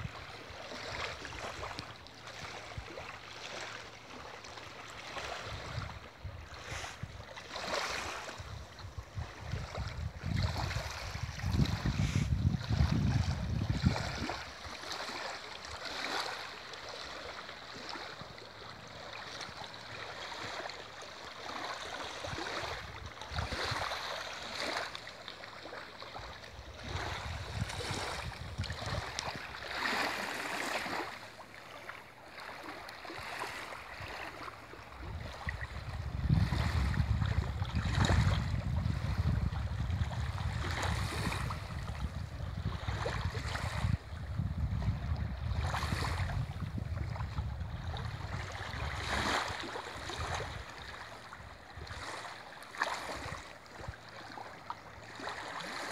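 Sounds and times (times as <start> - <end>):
small waves lapping on shore: 0.0 - 55.9.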